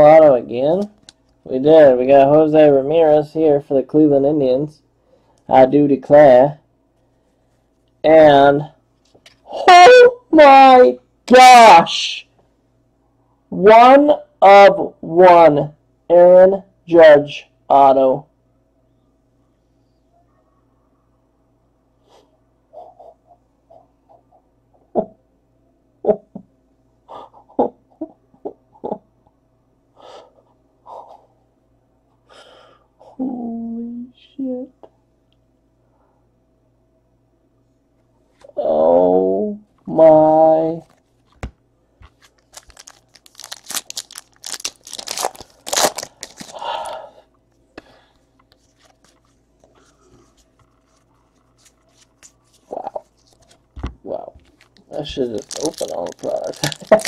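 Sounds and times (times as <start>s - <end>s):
cards rustling and clicking: 40.8s - 46.6s, 48.4s - 57.0s
foil wrapper crinkling: 42.0s - 46.8s, 54.4s - 57.0s
person breathing hard: 46.2s - 48.3s.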